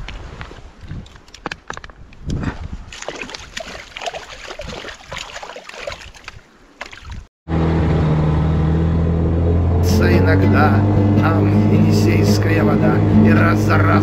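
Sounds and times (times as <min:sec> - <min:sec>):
river water splashing: 0:02.8 - 0:07.3.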